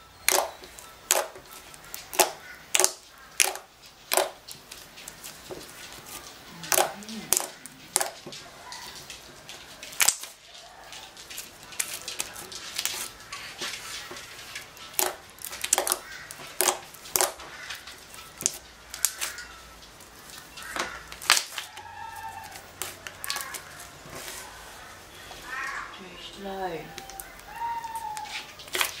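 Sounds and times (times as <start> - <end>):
sticky pops and clicks: 0.2 - 5.2, 6.6 - 19.4
slime squished by fingers: 0.3 - 4.4, 14.9 - 17.4.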